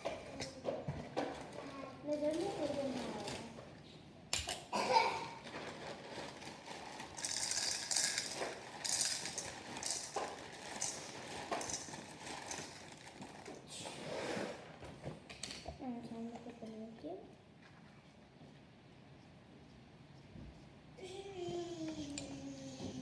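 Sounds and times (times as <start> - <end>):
plastic bag crinkling: 2.2 - 3.5, 5.3 - 13.7
cereal pouring into bowl: 5.9 - 13.5.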